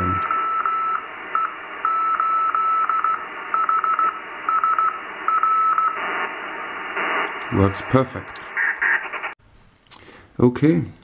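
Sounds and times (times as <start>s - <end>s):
morse code tone: 0.0s - 6.1s
receiver hiss: 0.0s - 9.4s.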